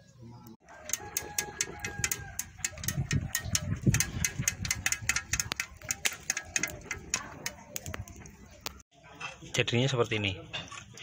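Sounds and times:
fire crackling and snapping: 3.8s - 8.8s.

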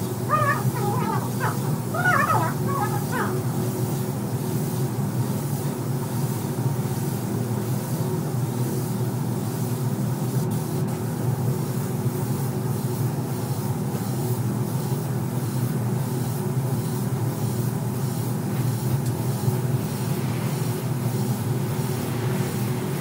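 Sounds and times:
ventilation mechanical drone: 0.0s - 23.0s
spray gun hiss: 2.9s - 23.0s.

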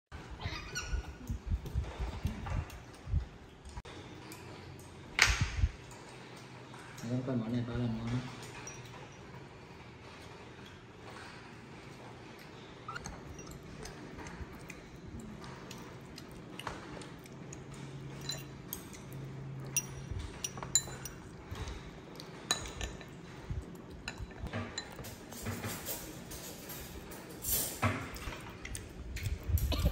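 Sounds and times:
metal spoon clinking on dish: 8.4s - 9.2s, 18.2s - 19.0s, 19.6s - 21.3s.

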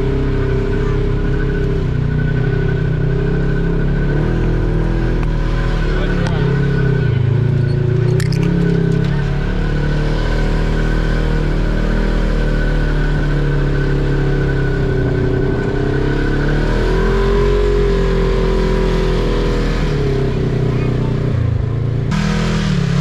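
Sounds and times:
engine running under load: 0.0s - 23.0s
high whine: 22.1s - 23.0s.

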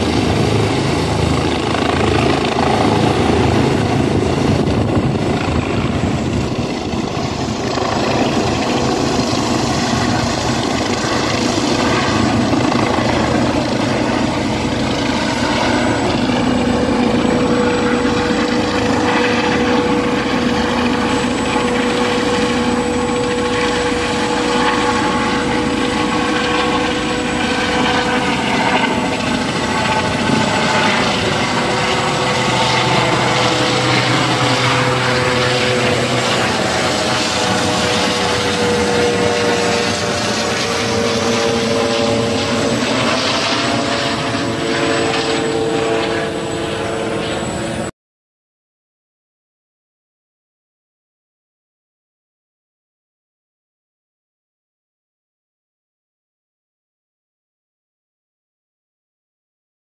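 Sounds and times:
helicopter flying overhead: 0.0s - 48.0s.

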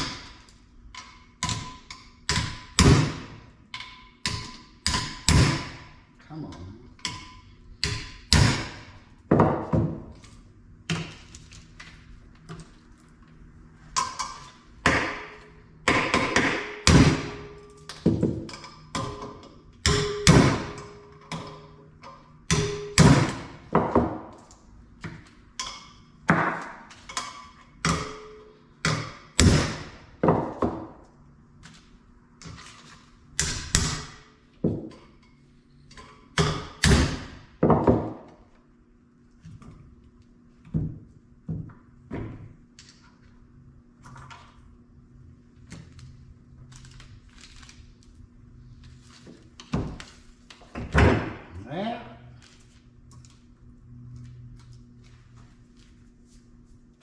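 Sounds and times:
hammer striking metal: 14.8s - 17.7s, 18.5s - 21.8s, 22.5s - 24.2s.

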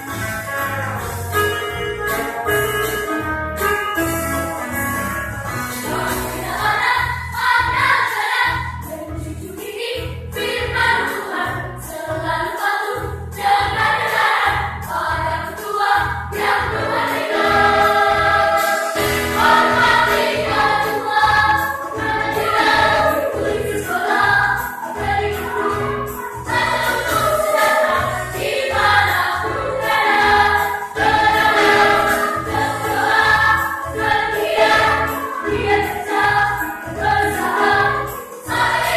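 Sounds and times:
electronic keyboard with beat: 0.0s - 6.2s
children's choir singing: 5.8s - 8.9s, 9.5s - 38.9s.

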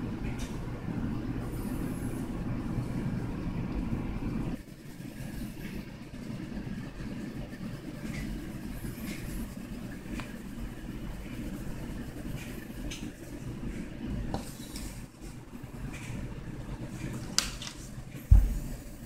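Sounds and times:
pencil scratching on paper: 4.6s - 6.4s, 7.0s - 14.9s.

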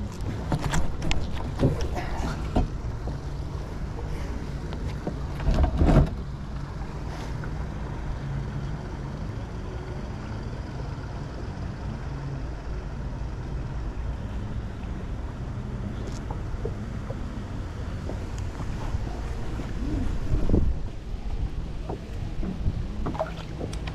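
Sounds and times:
moving water: 0.0s - 23.9s
wind on microphone: 18.2s - 23.3s.

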